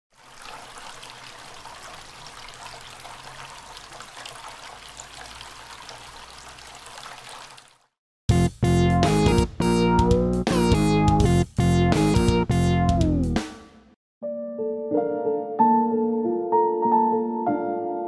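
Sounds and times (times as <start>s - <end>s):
fountain water trickling and splashing: 0.1s - 8.0s.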